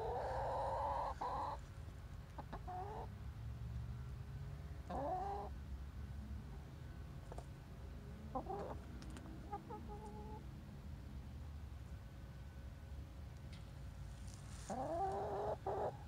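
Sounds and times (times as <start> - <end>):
hen clucking: 0.0 - 1.6, 2.4 - 3.1, 4.8 - 5.5, 8.3 - 10.4, 14.6 - 16.0.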